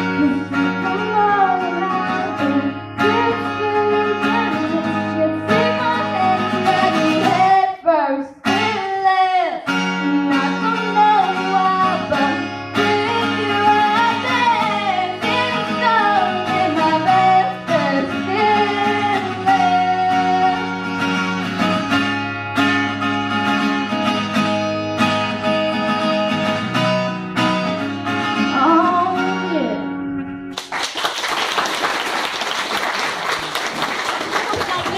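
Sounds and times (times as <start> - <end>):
girl singing: 0.0 - 21.8, 28.4 - 30.2
strummed acoustic guitar: 0.0 - 30.6
applause: 30.5 - 34.9.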